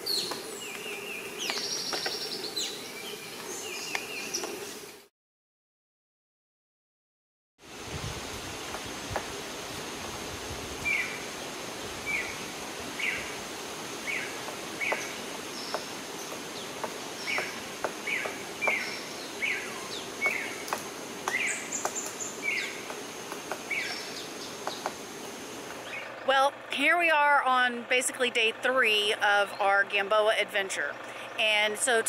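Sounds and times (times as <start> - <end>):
bird chirping: 0.0 - 5.0, 12.0 - 13.4, 14.0 - 25.0
high insect drone: 0.0 - 5.0, 7.7 - 26.1.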